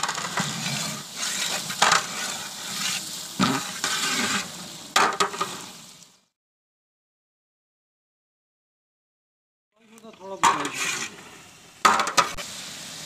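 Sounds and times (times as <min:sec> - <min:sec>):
metal ladle scraping pot: 0:00.0 - 0:05.6, 0:10.4 - 0:12.4
meat sizzling in pot: 0:00.0 - 0:06.4, 0:10.0 - 0:13.0.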